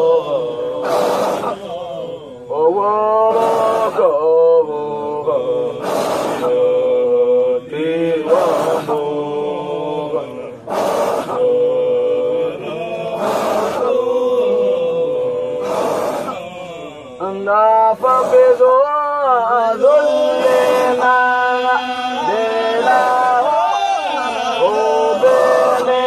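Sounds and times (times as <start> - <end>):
breathy hiss: 0.0 - 2.5, 3.2 - 4.2, 5.6 - 6.9, 8.2 - 9.6, 10.6 - 14.8, 15.4 - 16.7, 17.9 - 18.8
religious chanting: 0.0 - 26.0.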